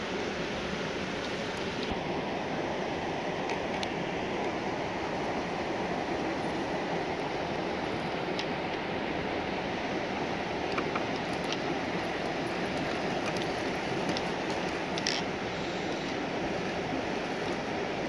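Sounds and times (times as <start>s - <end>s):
rc truck drivetrain noise: 14.9s - 16.1s.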